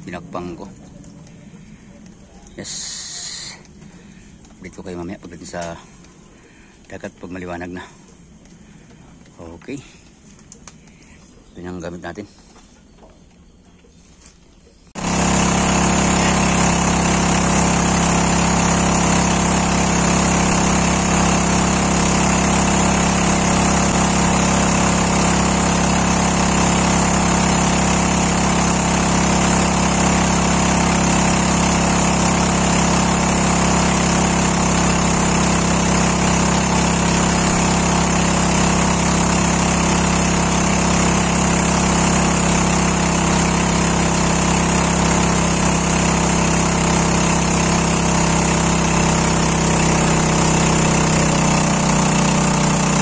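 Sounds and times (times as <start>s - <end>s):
engine humming steadily: 14.6s - 53.0s.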